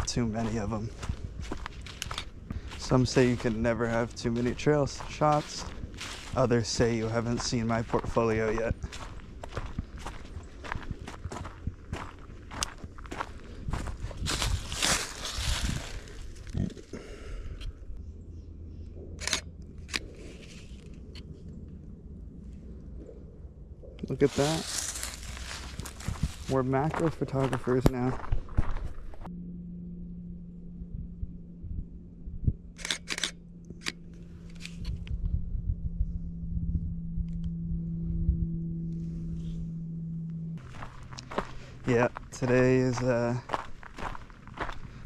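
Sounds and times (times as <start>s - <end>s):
low outdoor rumble: 0.0s - 45.0s
rustling and handling noise: 24.2s - 26.6s.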